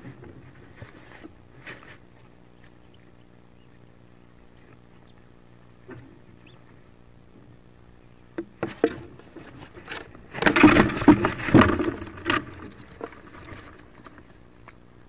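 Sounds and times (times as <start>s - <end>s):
scuffling and feather rustling: 0.0s - 3.1s.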